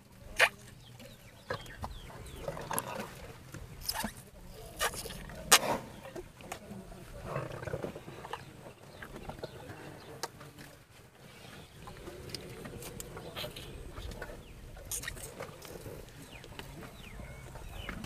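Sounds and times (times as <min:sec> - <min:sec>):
low animal sounds: 0:04.0 - 0:18.0.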